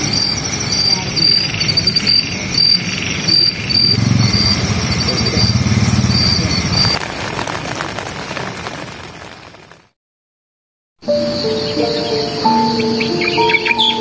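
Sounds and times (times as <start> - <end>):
night insects chirping: 0.0 - 7.0, 11.0 - 14.0.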